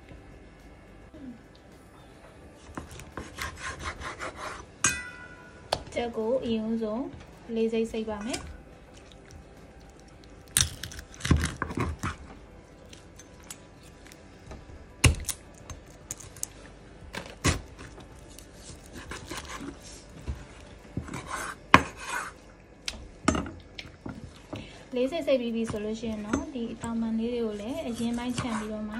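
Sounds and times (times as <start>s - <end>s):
knife chopping on cutting board: 2.8s - 4.6s, 21.0s - 22.3s.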